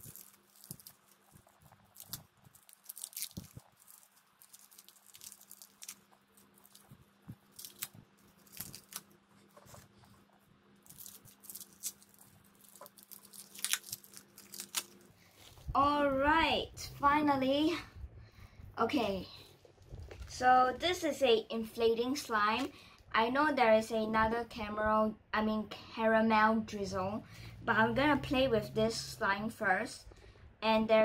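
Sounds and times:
plastic packaging crinkling and tearing: 0.0s - 9.9s, 10.8s - 15.7s.

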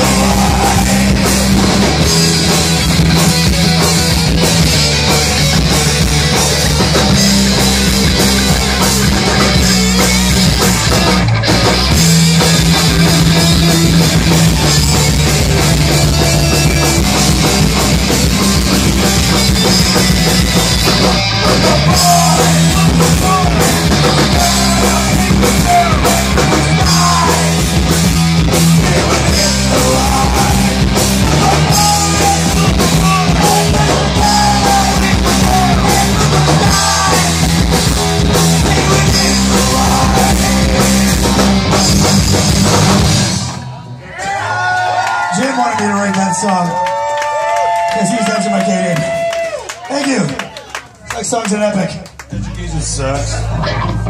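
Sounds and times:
person singing into a microphone: 0.0s - 1.6s, 21.4s - 27.6s, 28.8s - 42.4s
drum kit: 0.0s - 43.9s
electric guitars: 0.0s - 45.3s, 52.2s - 54.0s
bass guitar: 0.0s - 45.4s, 51.8s - 54.0s.

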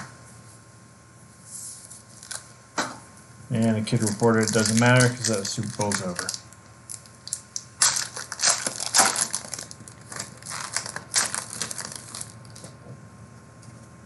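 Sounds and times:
plastic wrapper crinkling: 2.1s - 2.5s, 3.8s - 12.8s.

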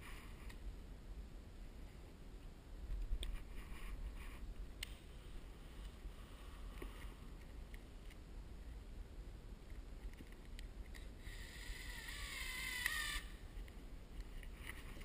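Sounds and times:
cordless drill motor whine: 11.2s - 13.4s.

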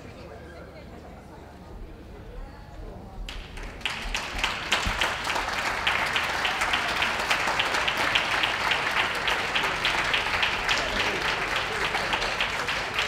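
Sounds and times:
crowd applauding: 3.3s - 13.0s.

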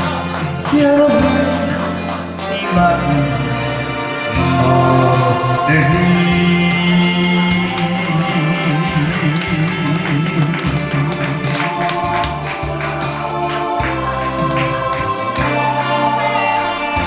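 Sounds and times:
amplified backing track: 0.0s - 17.0s
man singing into a microphone: 0.4s - 12.0s.

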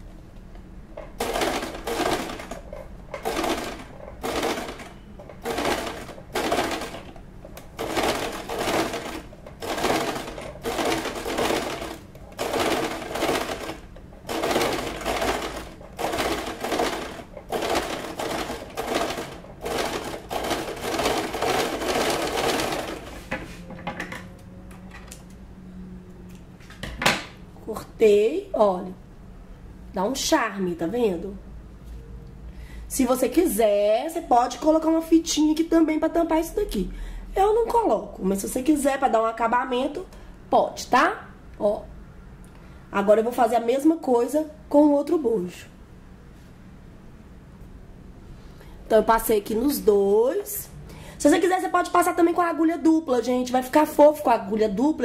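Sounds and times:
electric sewing machine stitching: 1.2s - 23.2s.

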